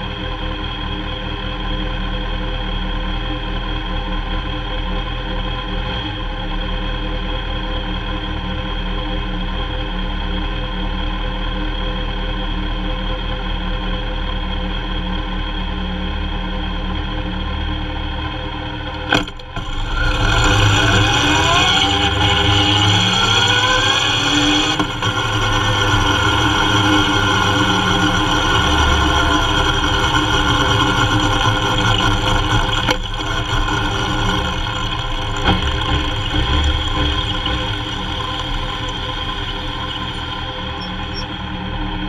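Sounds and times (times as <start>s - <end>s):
motorcycle engine accelerating: 15.0s - 42.0s.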